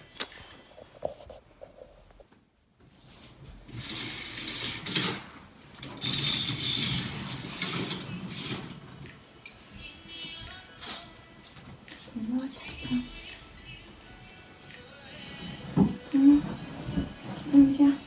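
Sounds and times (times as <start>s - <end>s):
curtains sliding along rail: 3.0s - 9.6s, 15.1s - 18.0s.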